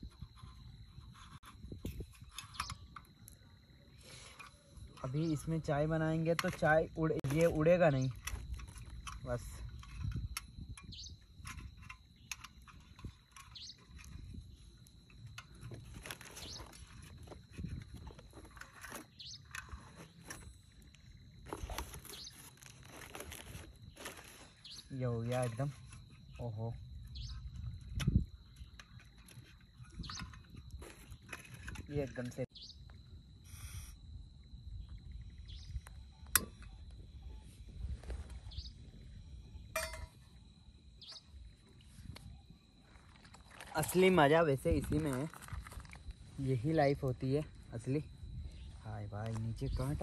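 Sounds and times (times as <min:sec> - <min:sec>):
bird chirping: 0:10.9 - 0:11.2, 0:13.3 - 0:14.2, 0:19.1 - 0:19.8, 0:27.1 - 0:27.7, 0:32.5 - 0:32.9, 0:41.0 - 0:41.6.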